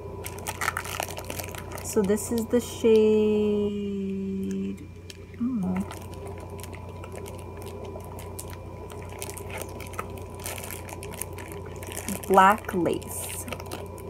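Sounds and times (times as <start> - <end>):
person speaking: 12.0 - 13.6.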